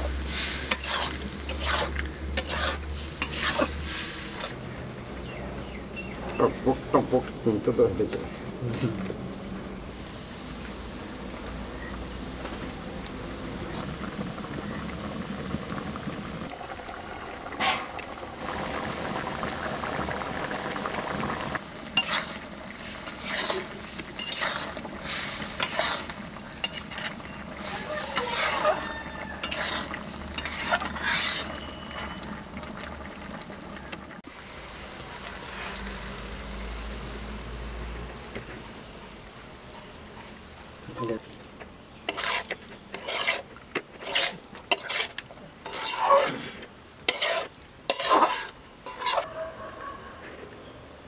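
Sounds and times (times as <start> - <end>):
metal spatula scraping a pan: 0.0 - 4.6, 21.9 - 32.2, 42.1 - 46.5, 47.1 - 49.3
curry simmering and sizzling: 0.0 - 7.4, 8.0 - 49.3.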